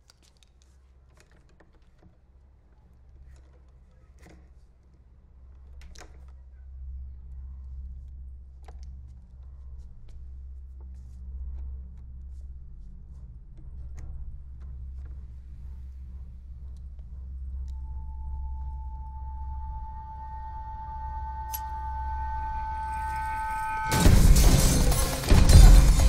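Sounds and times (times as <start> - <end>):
low steady drone: 6.5 - 26.0.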